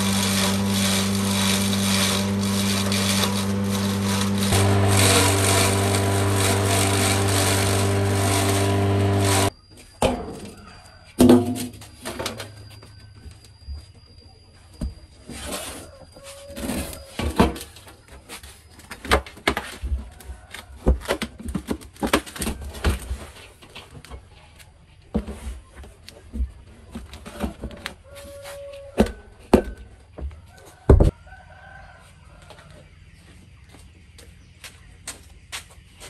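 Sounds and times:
rooster crowing: 0:10.4 - 0:11.2, 0:15.5 - 0:17.2, 0:28.0 - 0:29.4, 0:30.5 - 0:32.8.

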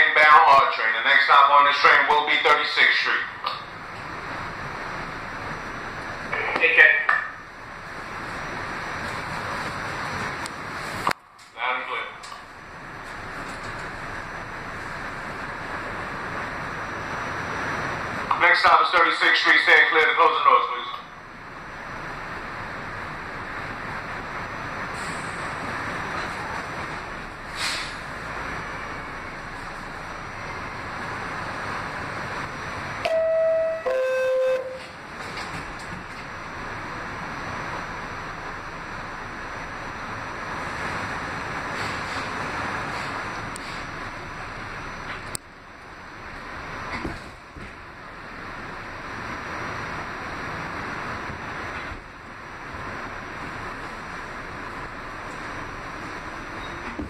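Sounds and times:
subway car background noise: 0:00.0 - 0:57.0
two-tone door chime: 0:33.1 - 0:34.9.

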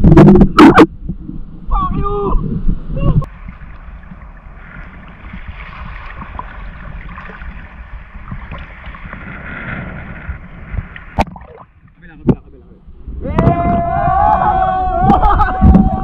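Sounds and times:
wind buffeting microphone: 0:00.0 - 0:16.0
sea water sloshing and lapping: 0:03.3 - 0:12.1.

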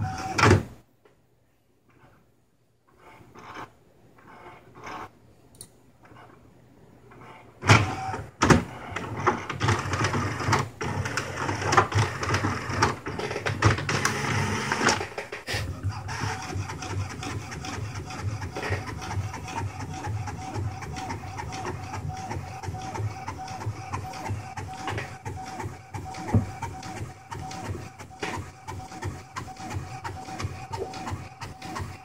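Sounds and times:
printer clicking while printing: 0:00.0 - 0:00.6, 0:07.2 - 0:32.0
printer clunk: 0:07.6 - 0:15.4, 0:17.1 - 0:32.0.

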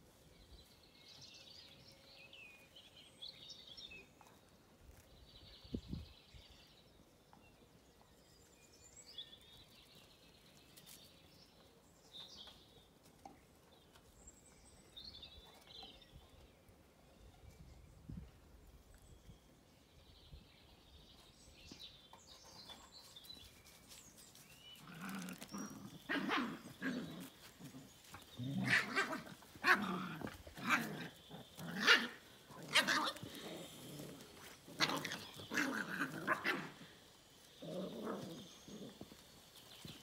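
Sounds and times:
puppies barking and growling: 0:24.8 - 0:39.6.

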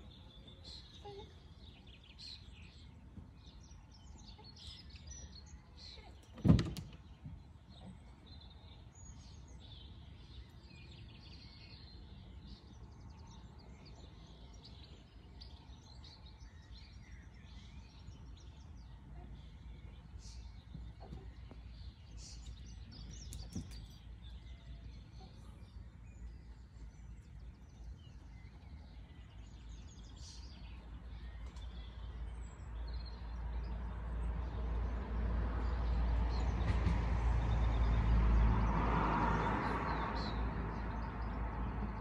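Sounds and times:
small birds chirping: 0:00.0 - 0:35.0
passing vehicle: 0:33.5 - 0:42.0.

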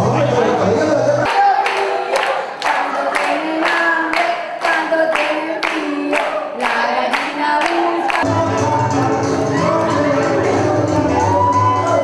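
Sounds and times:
woman singing into a microphone: 0:01.3 - 0:08.2.

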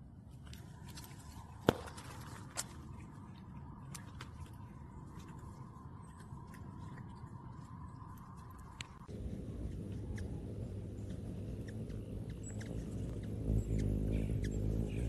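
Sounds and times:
cat chewing grass: 0:05.4 - 0:13.2.

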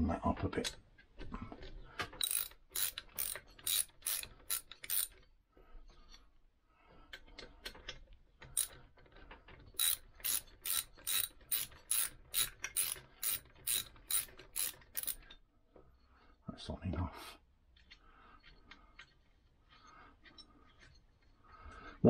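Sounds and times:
socket ratchet clicking: 0:02.2 - 0:05.2, 0:09.8 - 0:15.2.

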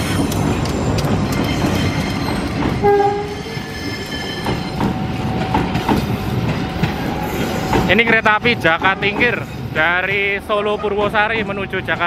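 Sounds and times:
wheels clicking over rail joints: 0:00.0 - 0:09.4.

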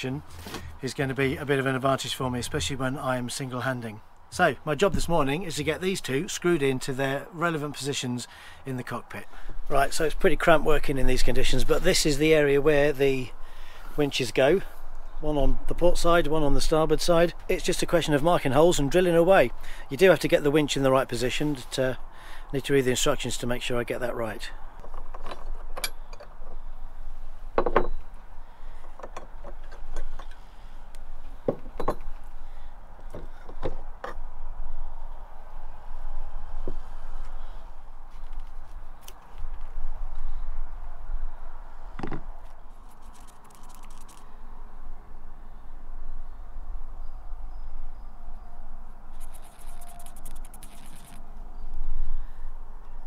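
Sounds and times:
marker pen scribbling: 0:42.8 - 0:44.2, 0:49.1 - 0:51.2.

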